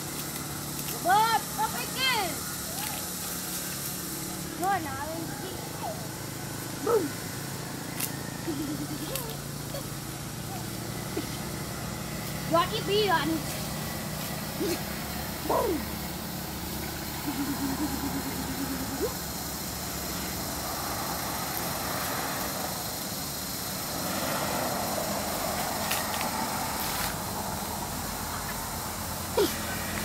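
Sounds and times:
scooter engine running: 0.0s - 30.0s.

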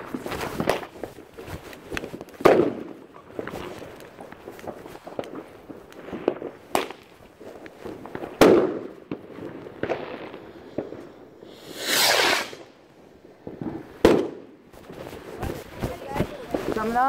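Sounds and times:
firecrackers cracking: 0.0s - 17.0s
firework hissing whoosh: 10.2s - 14.0s
loud firework bang: 13.6s - 14.4s.

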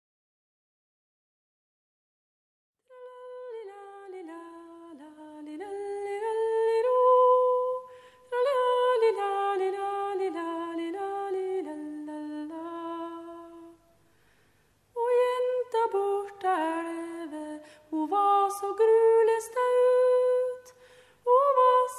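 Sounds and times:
person singing folk melody: 15.0s - 21.9s.

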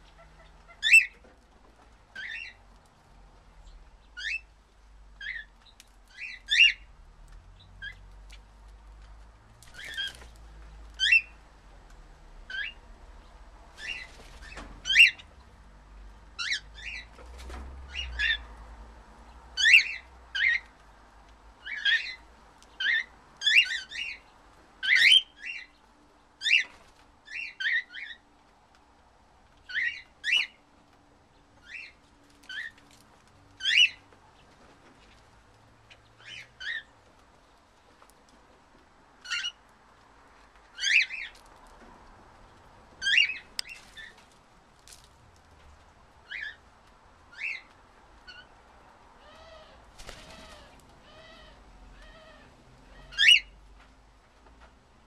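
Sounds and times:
cockatiels chirping: 0.1s - 1.3s, 2.2s - 2.6s, 4.1s - 4.5s, 11.0s - 11.4s, 13.8s - 15.3s, 19.6s - 20.7s, 22.8s - 24.2s, 33.6s - 34.0s, 43.0s - 44.2s, 49.2s - 53.5s.

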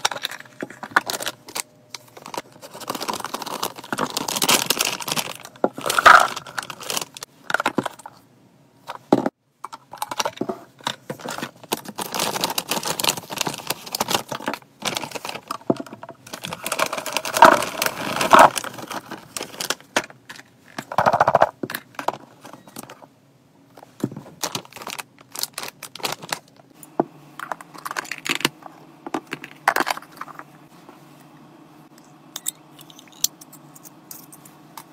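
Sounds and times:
pet food pouches crinkling: 0.0s - 7.9s, 11.1s - 20.2s, 24.4s - 26.6s.

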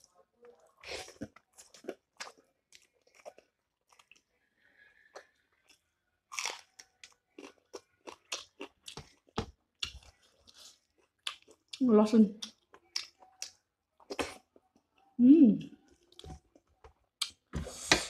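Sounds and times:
crunchy chewing: 0.5s - 4.4s, 5.0s - 11.8s.

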